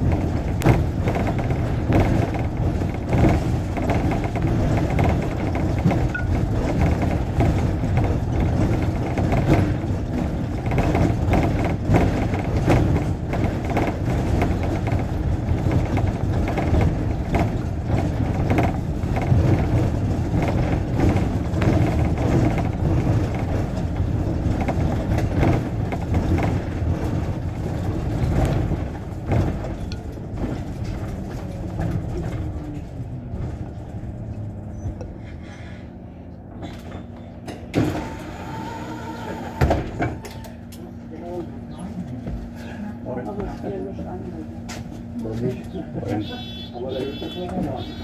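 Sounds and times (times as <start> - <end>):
bus engine and road rumble: 0.0 - 48.0
bus engine idling hum: 0.0 - 48.0.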